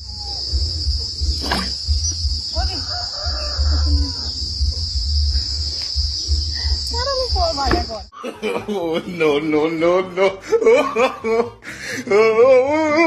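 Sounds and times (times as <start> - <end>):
high-pitched insect chorus: 0.0 - 8.1.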